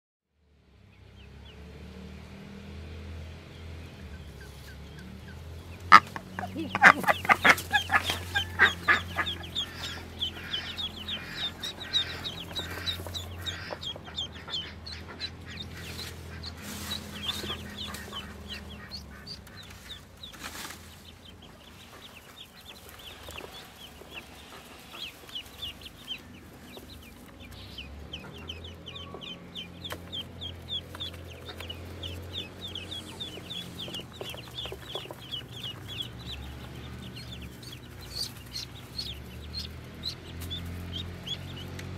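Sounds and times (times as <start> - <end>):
ducklings peeping: 3.5 - 41.9
rustling straw: 6.8 - 12.8, 15.7 - 27.4.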